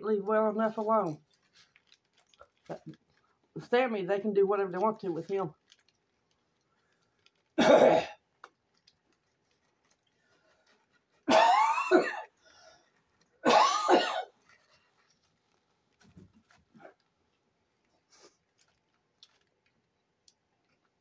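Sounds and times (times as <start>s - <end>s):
person coughing: 7.6s - 8.2s, 11.3s - 12.3s, 13.4s - 14.3s.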